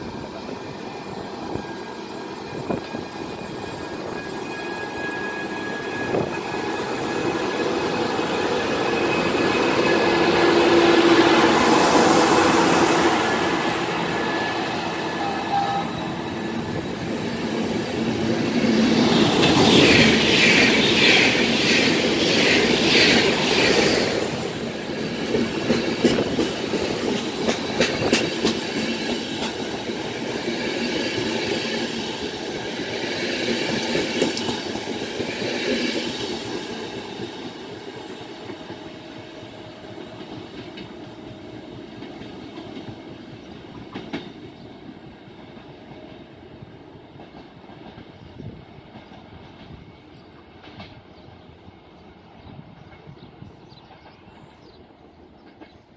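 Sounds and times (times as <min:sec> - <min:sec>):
train wheels clattering over rail joints: 0:18.0 - 0:38.9.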